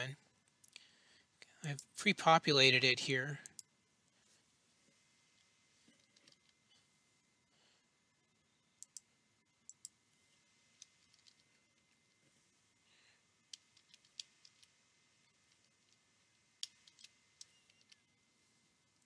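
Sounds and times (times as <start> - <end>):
mouse clicks: 8.8 - 9.1.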